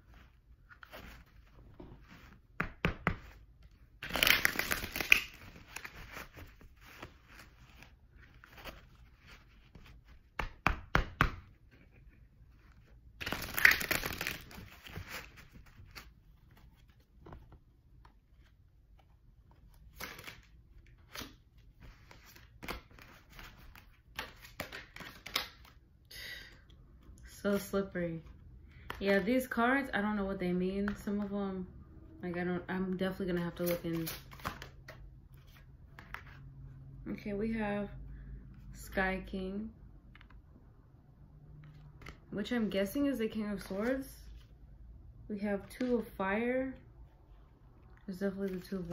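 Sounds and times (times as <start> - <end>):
cards tapping and knocking: 1.7 - 3.4, 10.0 - 12.2
cards riffle-shuffling: 4.0 - 10.6, 11.6 - 17.0, 19.5 - 25.7, 33.4 - 36.4.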